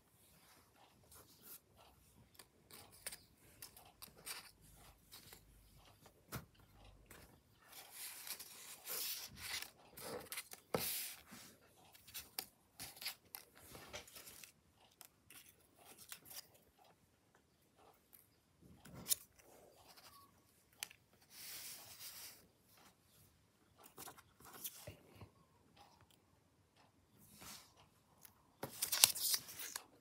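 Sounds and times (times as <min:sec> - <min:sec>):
paper rustling and crinkling: 0:28.6 - 0:30.0.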